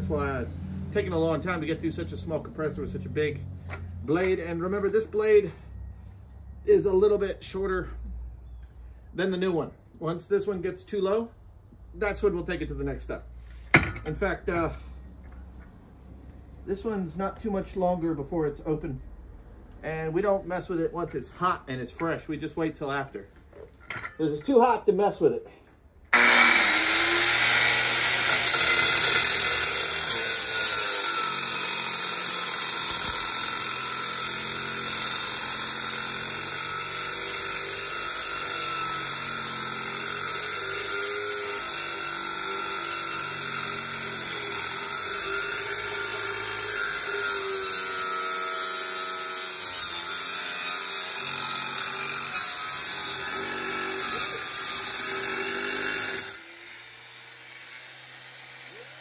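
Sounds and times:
angle grinder cutting metal: 0:26.1 - 0:59.0.

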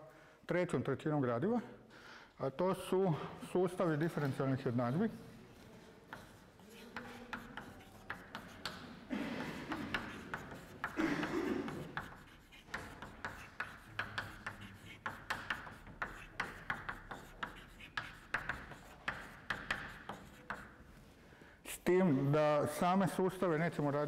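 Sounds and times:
chalk ticking on chalkboard: 0:06.0 - 0:20.8.

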